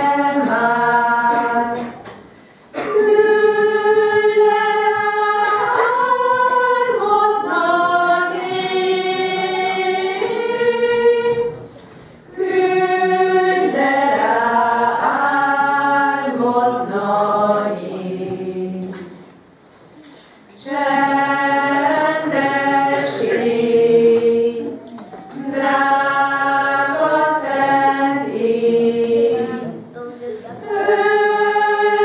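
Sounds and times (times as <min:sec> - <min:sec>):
choir singing: 0:00.0 - 0:01.9, 0:02.9 - 0:11.7, 0:12.3 - 0:19.2, 0:20.6 - 0:29.9, 0:30.5 - 0:32.0.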